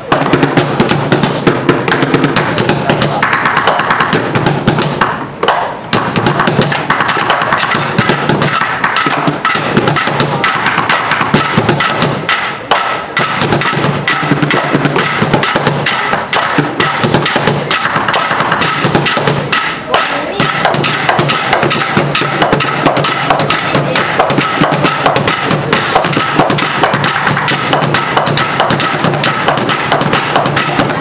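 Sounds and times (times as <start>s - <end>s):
drumming on plastic bins: 0.0s - 31.0s.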